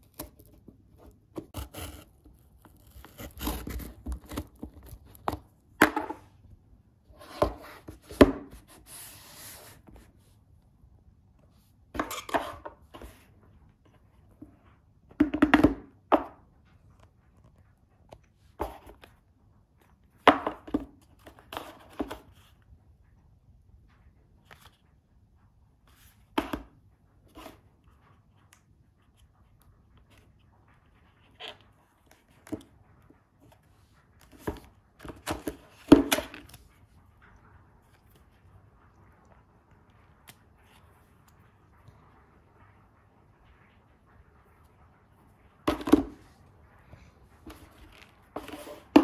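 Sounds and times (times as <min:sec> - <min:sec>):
paper rustling: 0:47.4 - 0:49.0
cardboard knocks and scrapes: 0:47.5 - 0:49.0.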